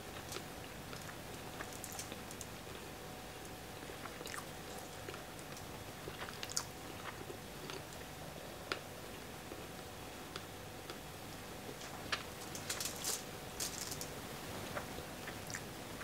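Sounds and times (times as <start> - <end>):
person chewing food: 0.1 - 2.9, 3.8 - 8.0.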